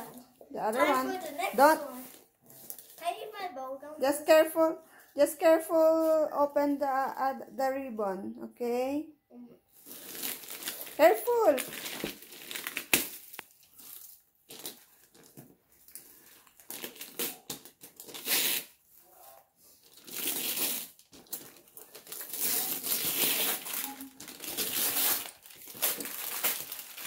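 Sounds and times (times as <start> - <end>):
wrapping paper crinkling and tearing: 0.8 - 3.2, 9.8 - 27.0.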